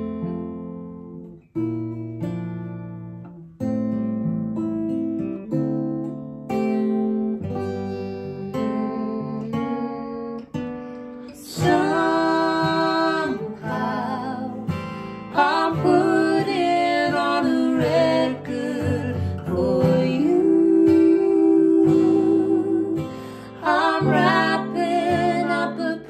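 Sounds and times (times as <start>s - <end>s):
acoustic guitar strumming: 0.0s - 26.0s
woman and man singing: 11.3s - 26.0s.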